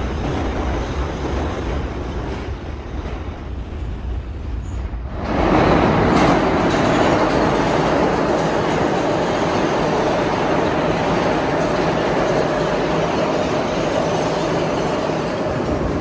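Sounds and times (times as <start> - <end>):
subway train rumble: 0.0 - 16.0
train wheels on rails: 0.0 - 16.0.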